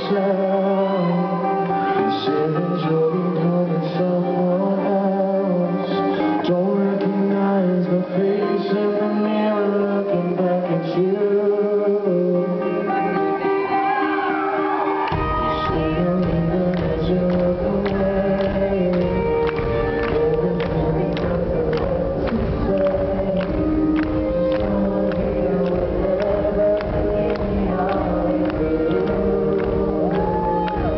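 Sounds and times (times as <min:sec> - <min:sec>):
man singing: 0:00.0 - 0:13.6, 0:15.1 - 0:30.9
rock band playing a ballad: 0:00.0 - 0:30.9.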